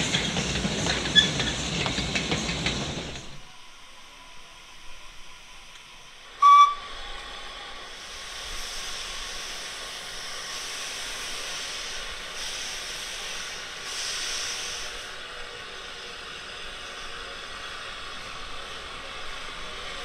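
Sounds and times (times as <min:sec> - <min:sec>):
steam hissing from locomotive: 0:00.0 - 0:20.0
high steam whistle toot: 0:06.3 - 0:07.0.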